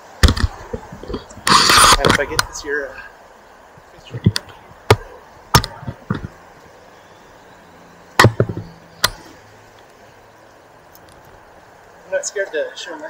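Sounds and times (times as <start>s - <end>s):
short sharp knocks: 8.2s - 9.3s.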